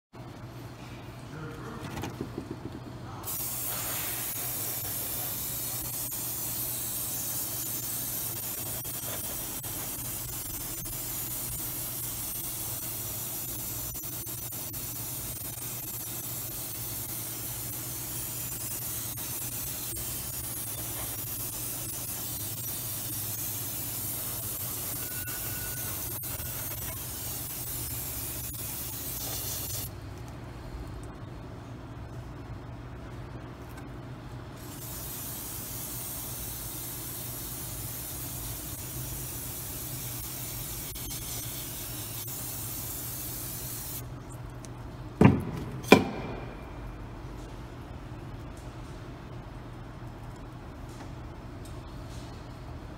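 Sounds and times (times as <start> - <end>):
aerosol spray can hissing: 3.3 - 29.9, 34.7 - 44.0.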